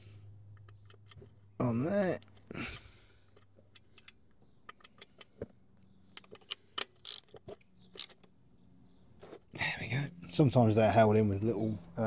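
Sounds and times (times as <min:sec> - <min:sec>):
small metallic clicks of socket: 0:03.3 - 0:08.3.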